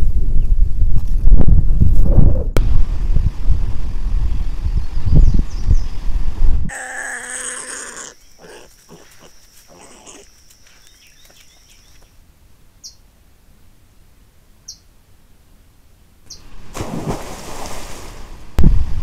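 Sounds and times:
boar squealing and grunting: 0:06.7 - 0:10.3
high insect trill: 0:06.7 - 0:12.1.

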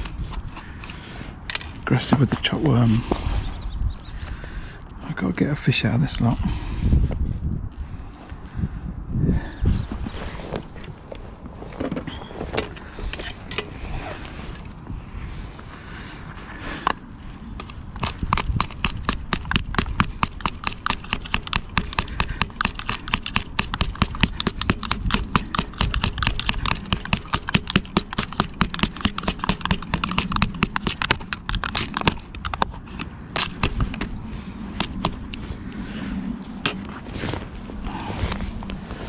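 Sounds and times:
knife chopping worms: 0:17.6 - 0:34.1, 0:34.7 - 0:35.4.

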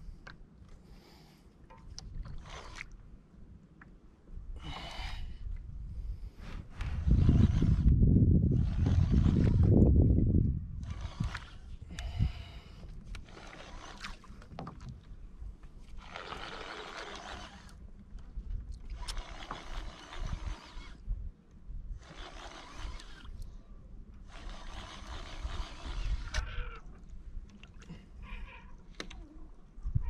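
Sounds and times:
fishing reel cranking: 0:02.3 - 0:02.8, 0:06.8 - 0:09.8, 0:10.8 - 0:14.4, 0:16.0 - 0:17.8, 0:18.9 - 0:21.0, 0:22.0 - 0:23.5, 0:24.2 - 0:26.8.

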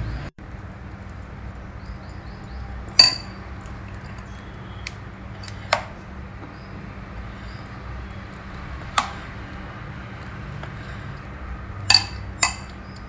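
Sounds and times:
spoon clinking glass bowl: 0:01.6 - 0:04.5, 0:11.9 - 0:12.8.

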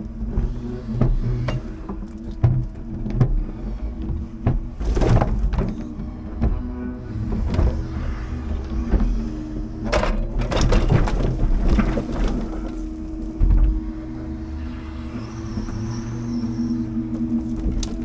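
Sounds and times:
truck engine humming: 0:00.0 - 0:18.0
knocks and clunks: 0:00.1 - 0:14.2.

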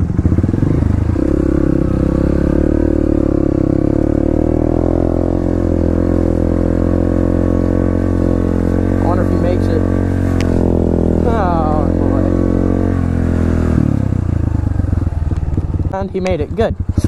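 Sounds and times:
dirt bike engine low revs: 0:00.0 - 0:17.0.

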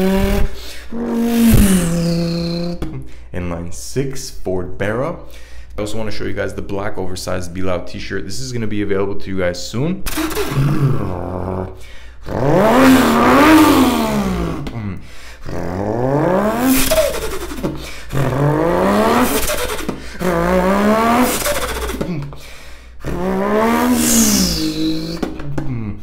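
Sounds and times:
man imitating engine revving: 0:00.0 - 0:03.8, 0:10.0 - 0:26.0
high falling whistle: 0:23.8 - 0:25.2.

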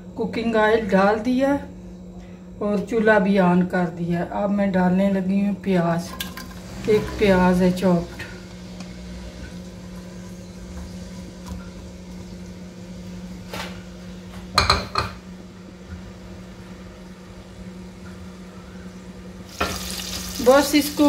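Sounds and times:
low hum: 0:00.0 - 0:21.0
onions sizzling in oil: 0:19.4 - 0:21.0.

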